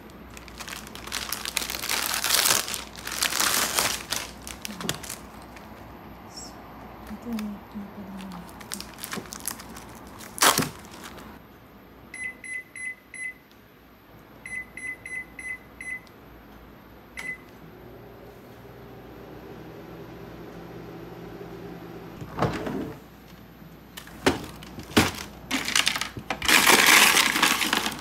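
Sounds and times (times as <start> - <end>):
crinkling handling sounds: 0.0 - 6.0, 7.0 - 11.4, 23.2 - 28.0
appliance low hum: 0.0 - 28.0
appliance control panel beeps: 12.1 - 13.6, 14.4 - 16.2, 17.2 - 17.6.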